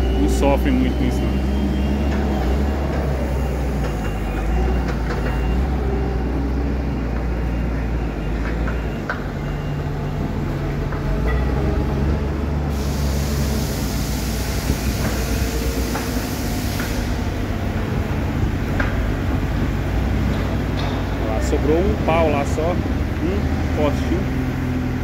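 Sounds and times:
wheel loader diesel engines rumbling: 0:00.0 - 0:25.0
loud hiss: 0:12.7 - 0:17.4.

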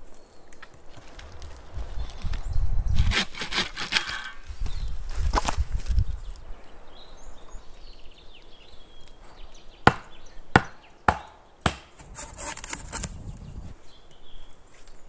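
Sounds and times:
rustling: 0:00.0 - 0:06.5
wood being chopped: 0:03.0 - 0:04.5, 0:09.8 - 0:13.1.

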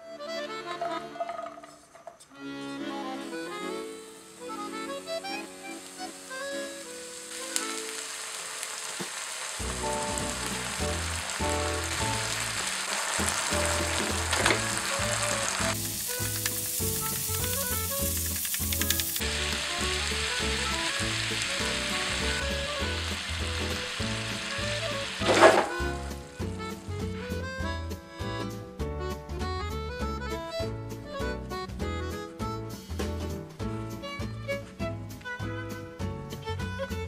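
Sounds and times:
meat sizzling in frying pan: 0:03.4 - 0:27.4
background music with bass line: 0:13.2 - 0:37.0.

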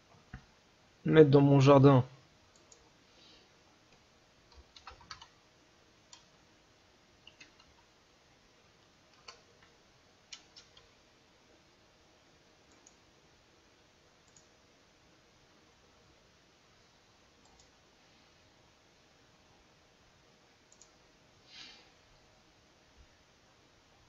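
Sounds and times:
keyboard keystrokes: 0:04.5 - 0:05.3, 0:07.2 - 0:07.8
mouse clicks: 0:14.2 - 0:14.5, 0:17.4 - 0:17.7, 0:20.7 - 0:21.0.

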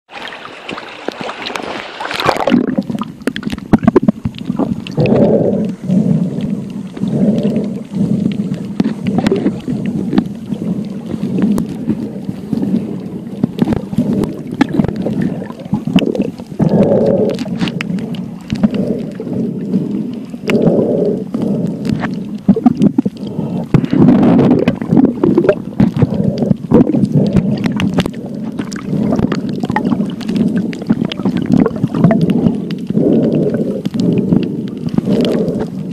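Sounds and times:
underwater water sloshing: 0:00.1 - 0:35.9.

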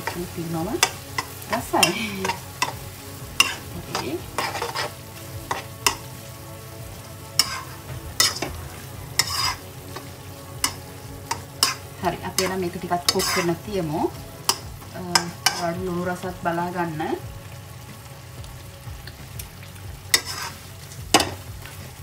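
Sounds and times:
low sizzle from pan: 0:00.0 - 0:22.0
metal spoon scraping a wok: 0:03.4 - 0:06.1, 0:07.4 - 0:08.6, 0:09.2 - 0:13.6, 0:14.5 - 0:15.8, 0:20.1 - 0:21.4.

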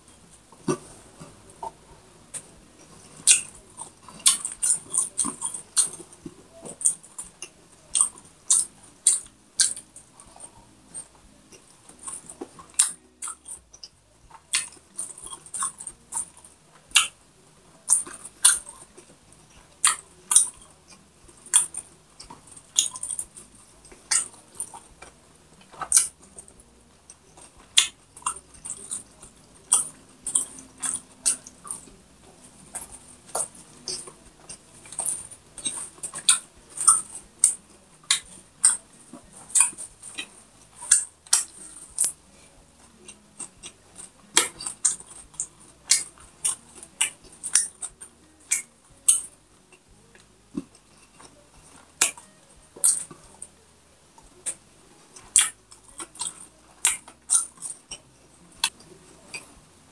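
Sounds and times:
crunchy food chewing: 0:00.0 - 0:59.9
wet mouth clicks: 0:03.1 - 0:17.2, 0:17.9 - 0:23.4, 0:24.0 - 0:25.1, 0:25.7 - 0:26.5, 0:27.1 - 0:32.0, 0:32.7 - 0:38.8, 0:39.5 - 0:42.2, 0:43.0 - 0:49.3, 0:55.2 - 0:59.5.

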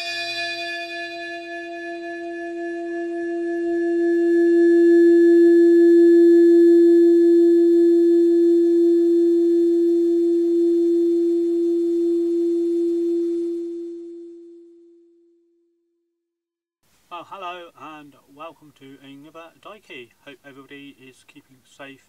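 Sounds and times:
steady ringing tone: 0:00.0 - 0:15.4.

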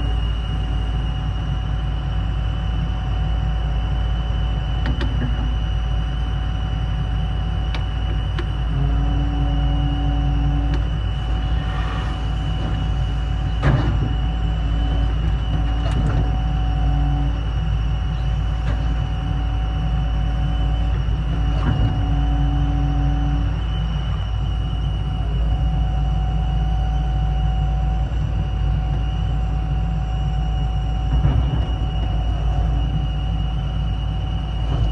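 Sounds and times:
diesel engine running: 0:00.0 - 0:34.9
high whine: 0:00.0 - 0:34.9
hydraulic humming: 0:00.0 - 0:34.9.

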